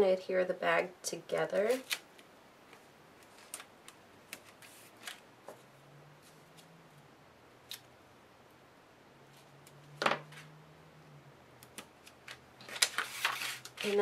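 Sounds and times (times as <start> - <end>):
paper and tape crinkling: 1.5 - 5.2, 11.8 - 14.0.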